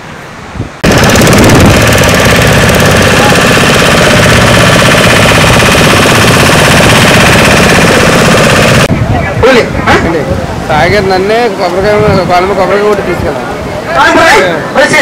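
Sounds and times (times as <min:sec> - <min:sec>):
outboard motor chugging: 0:00.8 - 0:08.9.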